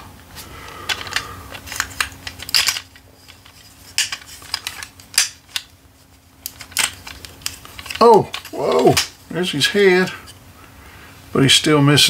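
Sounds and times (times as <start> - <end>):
plastic toy parts clicking: 0.8 - 5.7, 6.4 - 9.1.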